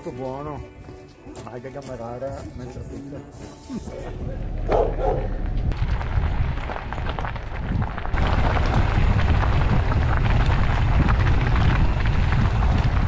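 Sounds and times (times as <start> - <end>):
wind buffeting microphone: 4.1 - 13.0
bike tyres crunching on gravel: 5.7 - 13.0.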